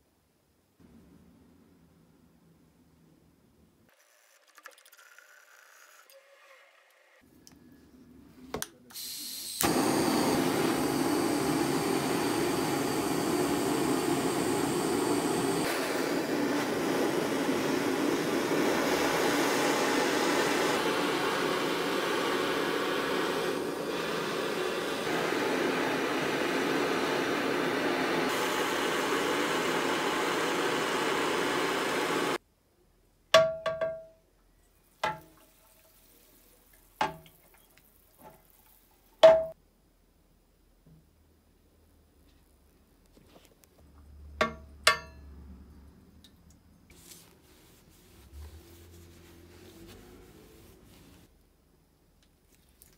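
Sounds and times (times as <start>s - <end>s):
gas torch flame burning: 9.0s - 32.4s.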